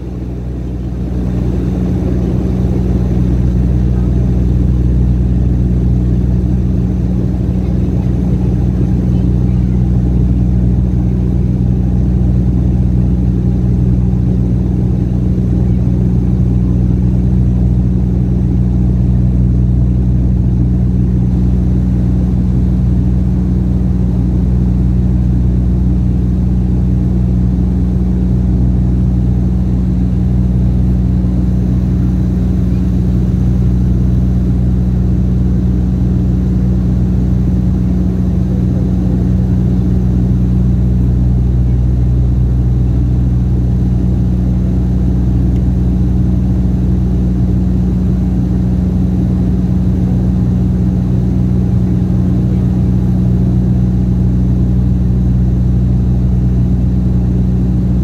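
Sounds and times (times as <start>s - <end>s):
propeller engine droning in cabin: 0.0s - 58.0s.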